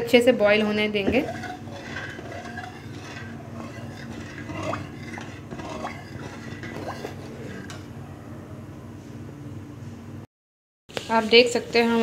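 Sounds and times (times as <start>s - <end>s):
metal ladle scraping a metal pan: 1.0s - 7.8s.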